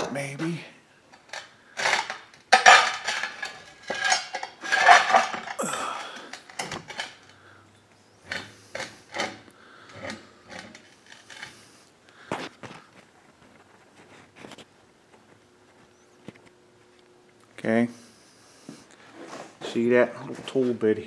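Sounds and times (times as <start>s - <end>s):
metal tools clinking and clanking: 1.1s - 7.3s.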